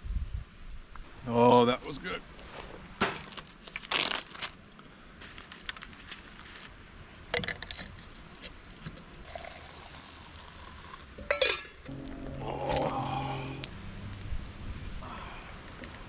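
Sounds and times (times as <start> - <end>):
hot water poured into mug: 9.2 - 11.3.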